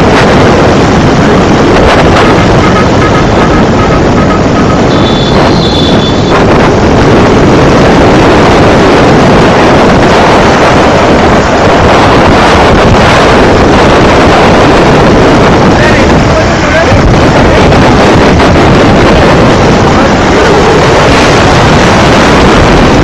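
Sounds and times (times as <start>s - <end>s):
vehicle engine and road noise: 0.0s - 23.0s
wind buffeting microphone: 0.0s - 23.0s
high-pitched tone: 2.2s - 6.4s.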